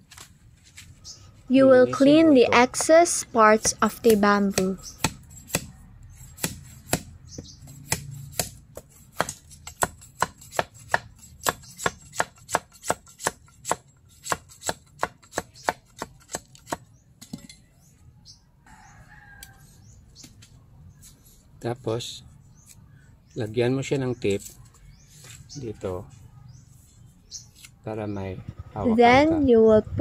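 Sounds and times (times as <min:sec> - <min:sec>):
knife chopping bamboo: 0:03.6 - 0:17.4.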